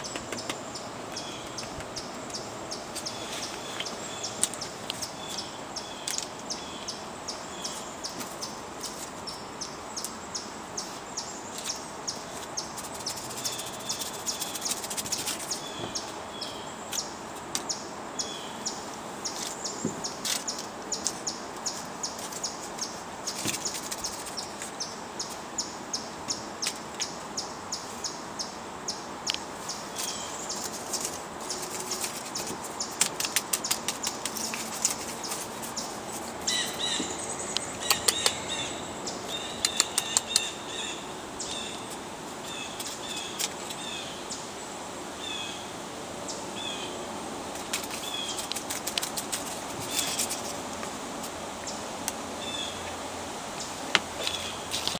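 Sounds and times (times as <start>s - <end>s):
birds chirping: 0.0s - 54.9s
steady outdoor hiss: 0.0s - 54.9s
dry leaf crackling on wood: 10.9s - 16.2s, 18.4s - 25.4s, 29.3s - 44.1s, 47.4s - 54.9s
evenly spaced ticks: 11.5s - 16.1s, 29.2s - 40.6s, 47.5s - 52.2s.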